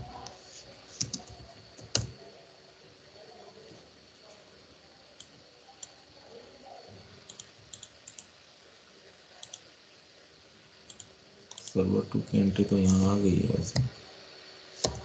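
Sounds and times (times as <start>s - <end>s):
computer mouse clicking: 1.0s - 2.2s, 7.3s - 8.3s, 9.4s - 9.6s, 10.9s - 11.8s, 14.8s - 15.0s.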